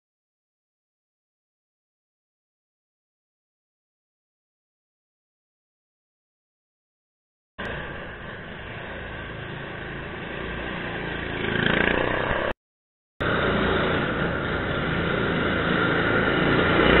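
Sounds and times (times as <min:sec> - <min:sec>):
go-kart engines running: 0:07.6 - 0:12.5, 0:13.2 - 0:17.0.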